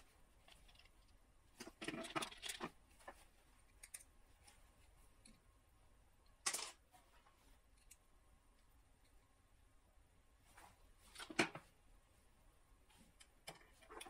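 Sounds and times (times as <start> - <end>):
small parts clicking: 3.6 - 4.1, 7.7 - 9.3.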